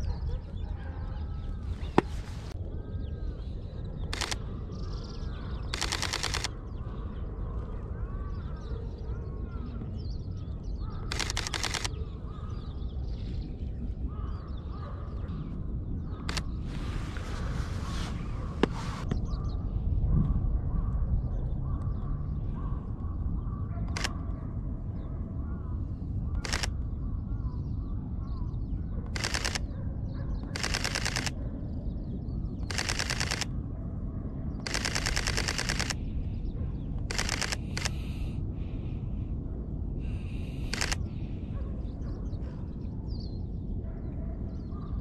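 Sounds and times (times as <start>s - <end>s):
low outdoor background noise: 0.0s - 45.0s
camera shutter clicking: 4.1s - 4.4s, 5.7s - 6.5s, 11.1s - 11.9s, 16.3s - 16.5s, 23.9s - 24.1s, 26.4s - 26.7s, 29.2s - 29.6s, 30.5s - 31.3s, 32.7s - 33.5s, 34.6s - 36.0s, 37.1s - 38.1s, 40.5s - 41.0s.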